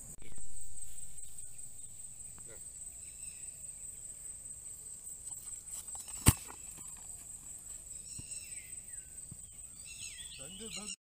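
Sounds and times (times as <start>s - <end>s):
faint outdoor ambience: 0.0s - 11.0s
high-pitched insect drone: 0.0s - 11.0s
short bird chirps: 8.0s - 11.0s.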